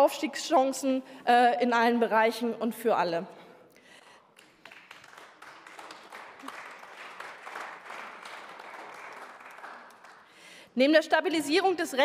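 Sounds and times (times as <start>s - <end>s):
crowd applauding: 4.3s - 10.6s.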